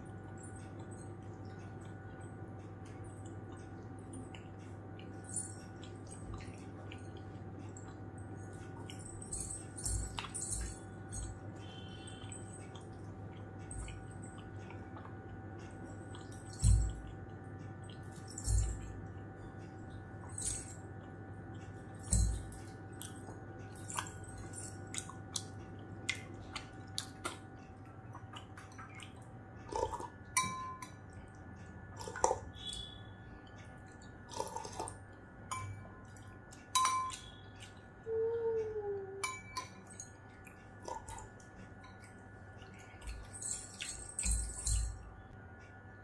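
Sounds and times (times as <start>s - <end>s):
metal spoon clinking on glass bowl: 30.4s - 31.0s, 35.5s - 35.9s, 36.7s - 37.3s, 39.2s - 40.2s.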